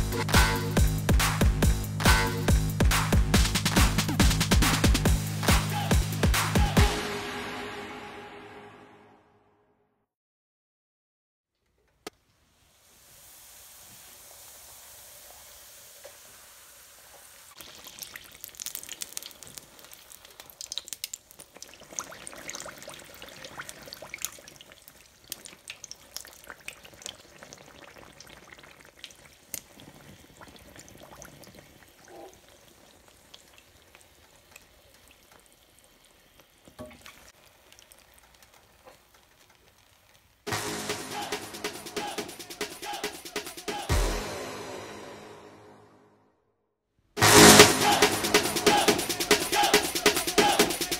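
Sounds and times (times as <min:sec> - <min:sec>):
tortilla sizzling in hot oil: 0:12.3 - 0:40.7.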